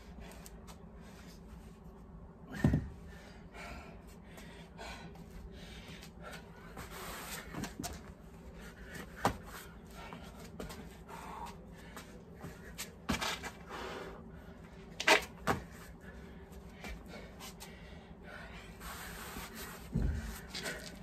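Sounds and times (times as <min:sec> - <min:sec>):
hard breathing: 0:02.4 - 0:07.8, 0:08.4 - 0:14.9, 0:15.8 - 0:21.0
dumbbells and body thudding on mat: 0:02.5 - 0:03.0, 0:15.0 - 0:15.9, 0:19.8 - 0:21.0.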